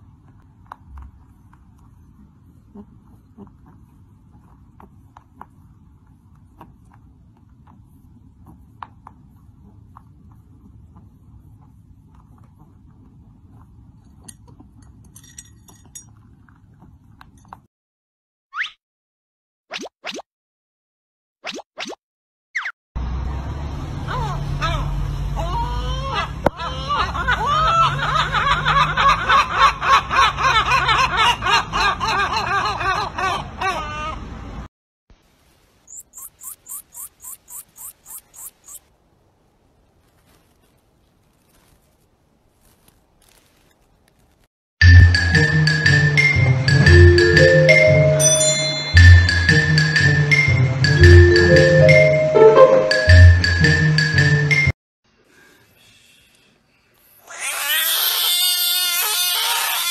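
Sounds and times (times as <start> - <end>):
low background noise: 38.5 - 44.5.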